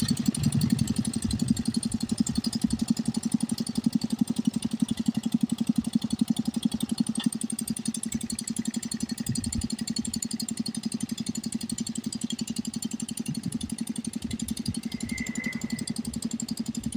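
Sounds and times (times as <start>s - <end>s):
diesel engine chugging: 0.0s - 16.9s
brief high chirp: 14.7s - 16.0s.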